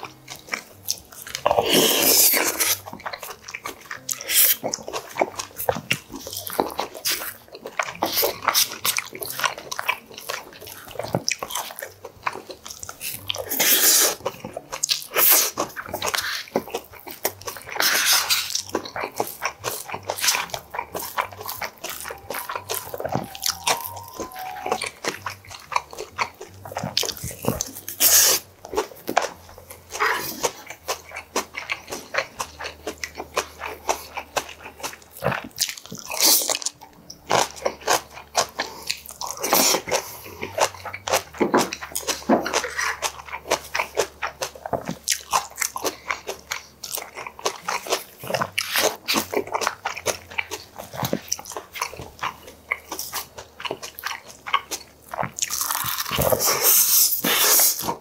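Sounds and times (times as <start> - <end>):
close-miked chewing: 0.0 - 58.0
louder eating bursts: 0.3 - 36.7, 37.3 - 58.0.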